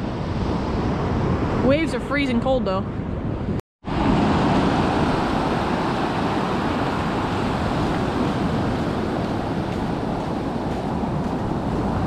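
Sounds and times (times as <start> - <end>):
wind on microphone: 0.0 - 12.0
ocean surf breaking: 3.8 - 12.0.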